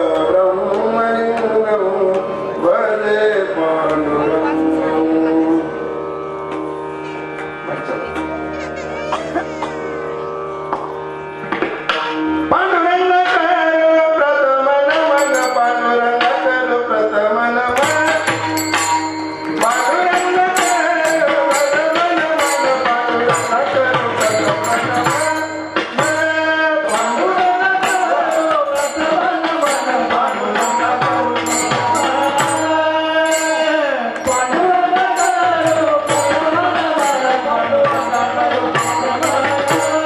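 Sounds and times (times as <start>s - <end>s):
man singing into microphone: 0.0s - 5.9s, 12.5s - 40.0s
held instrumental tones: 0.0s - 40.0s
hand percussion beat: 14.9s - 16.7s, 17.7s - 40.0s.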